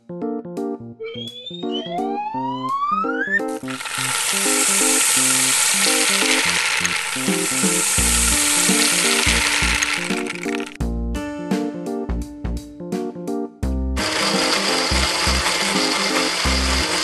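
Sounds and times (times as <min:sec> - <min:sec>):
background music: 0:00.0 - 0:17.0
rising whistle glide: 0:01.0 - 0:10.6
small balls pouring into a jar: 0:03.6 - 0:10.8, 0:14.0 - 0:17.0.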